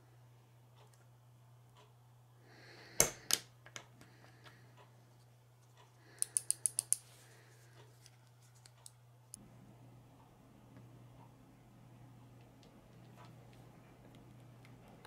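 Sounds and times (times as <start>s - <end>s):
small plastic clicks: 6.2s - 7.0s.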